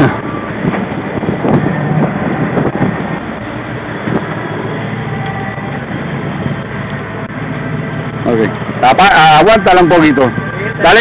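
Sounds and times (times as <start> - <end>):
wind on microphone: 0.0 - 8.8
boat engine running: 0.0 - 11.0
water washing along hull: 0.0 - 11.0.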